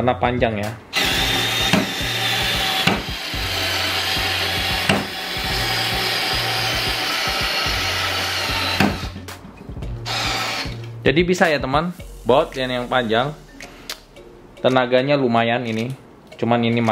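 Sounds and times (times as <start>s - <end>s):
electric screwdriver motor whirring: 1.0s - 9.2s, 10.1s - 10.8s
screw grinding into wood: 1.0s - 9.2s, 10.1s - 10.8s.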